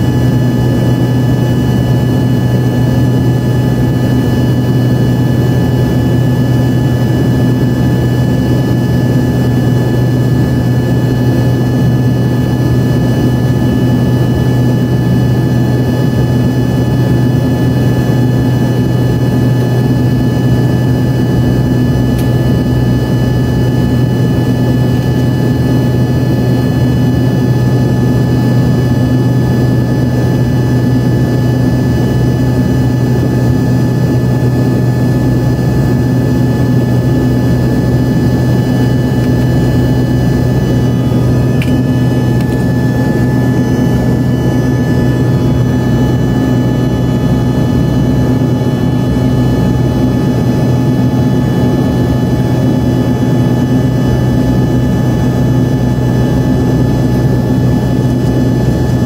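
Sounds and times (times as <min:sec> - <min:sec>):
jet engines droning in cabin: 0:00.0 - 0:59.0.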